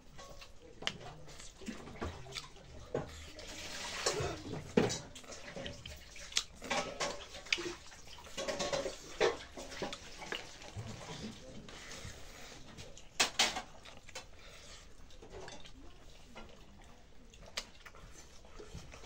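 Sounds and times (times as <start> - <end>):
lip smacks and chewing: 0.4 - 2.6, 5.2 - 8.4, 13.7 - 19.0
fingers squelching through food: 13.7 - 19.0.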